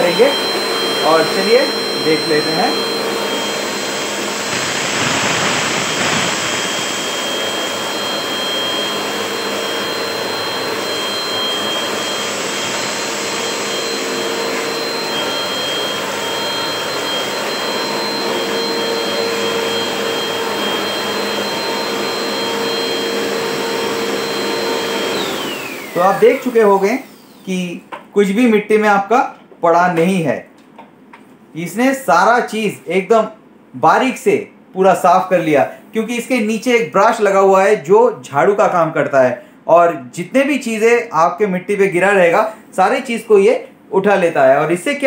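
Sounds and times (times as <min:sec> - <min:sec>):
vacuum suction rush: 0:00.0 - 0:27.1
vacuum cleaner motor whine: 0:00.0 - 0:27.6.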